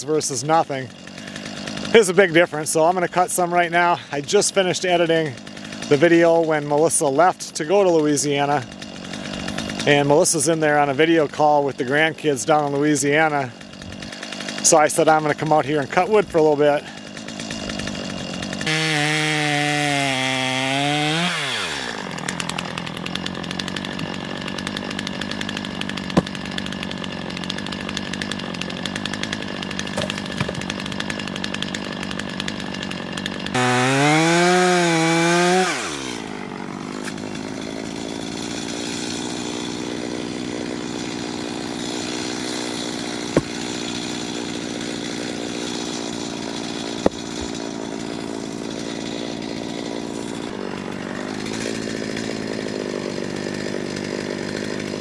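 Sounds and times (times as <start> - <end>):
chainsaw cutting logs: 0.0 - 55.0
sharp knocks: 26.1 - 26.4, 29.9 - 30.7, 43.3 - 43.6, 47.0 - 47.6.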